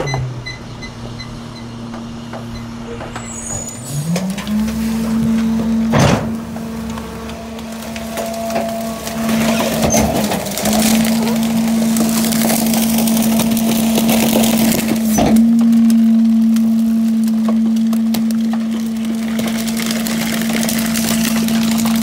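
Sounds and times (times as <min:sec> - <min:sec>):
metal clunk: 0:00.0 - 0:10.4
hydraulic whine: 0:00.0 - 0:22.0
packer blade crushing toys and cardboard: 0:09.2 - 0:22.0.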